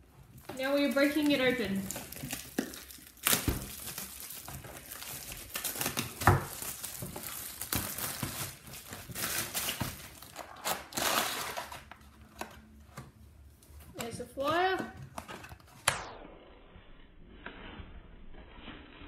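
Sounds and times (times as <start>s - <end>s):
plastic wrap tearing and crinkling: 0.2s - 12.6s.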